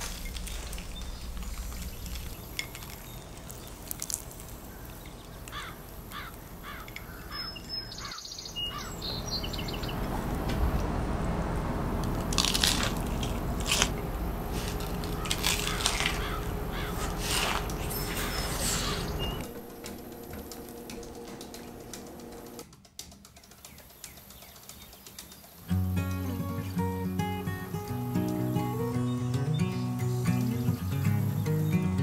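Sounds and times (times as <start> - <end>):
crunching of fried food: 0.0 - 6.9, 12.0 - 19.2
birds chirping: 0.0 - 22.6, 23.6 - 32.0.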